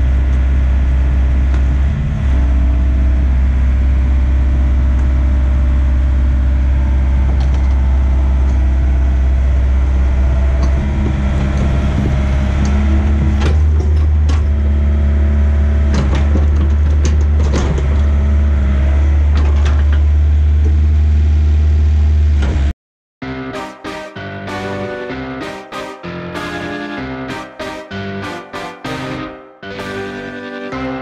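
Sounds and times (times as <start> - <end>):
excavator diesel engine under load: 0.0 - 22.7.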